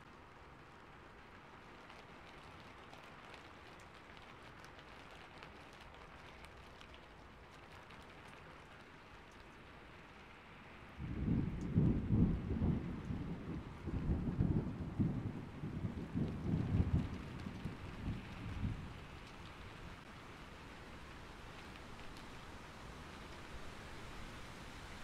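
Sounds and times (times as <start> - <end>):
steady rain hissing: 0.0 - 25.0
thunder rumble: 10.9 - 20.0.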